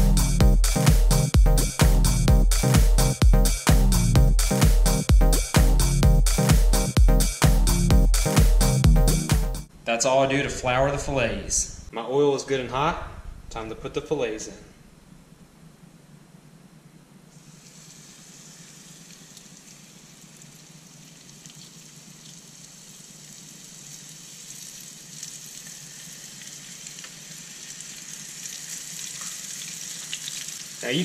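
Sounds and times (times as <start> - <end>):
low steady hum: 9.6 - 28.8
fish sizzling in oil: 17.3 - 30.9.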